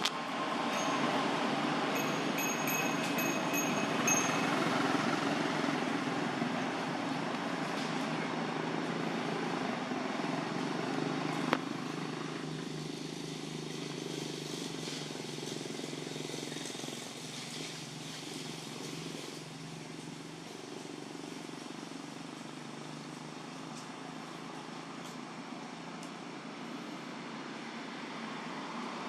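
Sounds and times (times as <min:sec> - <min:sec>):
outdoor background noise: 0:00.0 - 0:29.0.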